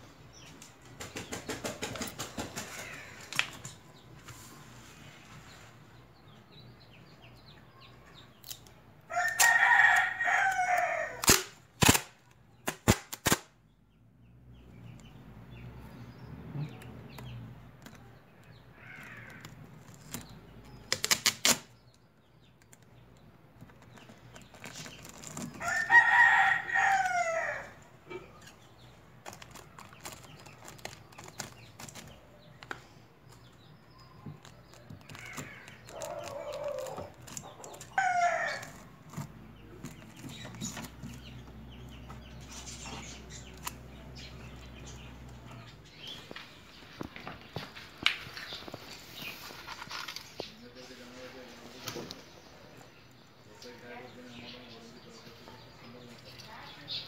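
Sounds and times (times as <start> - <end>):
rooster crowing: 9.1 - 11.2, 25.6 - 27.8, 37.9 - 38.8.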